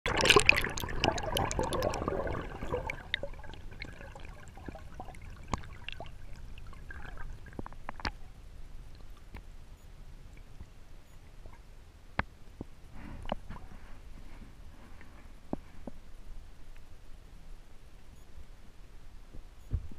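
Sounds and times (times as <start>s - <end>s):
water gurgling underwater: 0.1s - 8.2s
quiet hiss: 0.1s - 19.9s.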